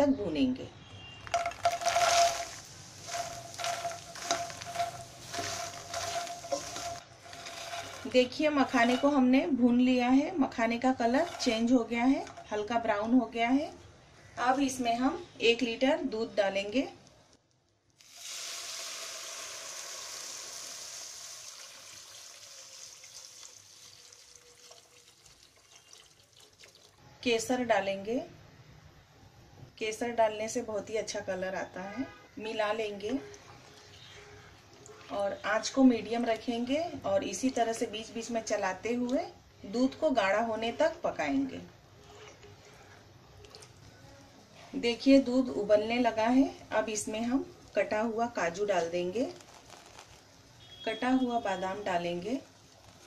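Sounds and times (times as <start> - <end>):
nuts sizzling in a pan: 1.3 - 9.0, 18.0 - 25.0, 52.5 - 53.0
stirring in a pan: 1.3 - 9.3, 10.9 - 12.7
milk pouring and splashing: 18.0 - 27.0, 52.7 - 53.0.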